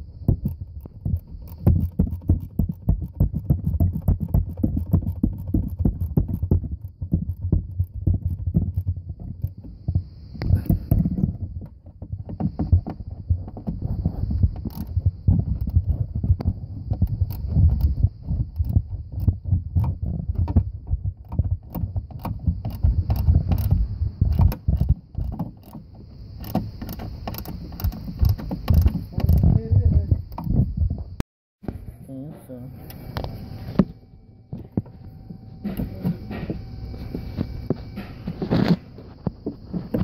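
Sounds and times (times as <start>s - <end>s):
hand ratchet clicking: 0.0s - 9.7s, 12.3s - 20.6s, 21.2s - 29.7s
tool knocking against parts: 0.0s - 31.2s.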